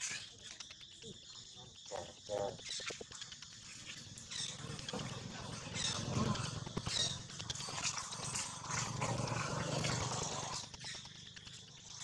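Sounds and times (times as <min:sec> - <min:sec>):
faint monkey calls: 0:00.0 - 0:07.4.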